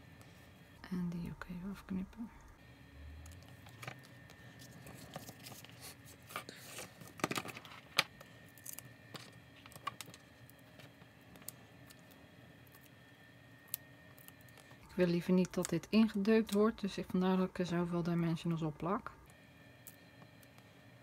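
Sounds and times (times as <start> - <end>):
paper rustling: 3.7 - 8.0.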